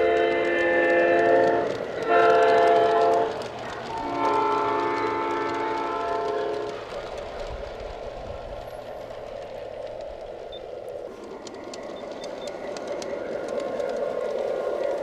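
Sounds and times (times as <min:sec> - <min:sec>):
model train rolling on track: 0:00.0 - 0:15.0.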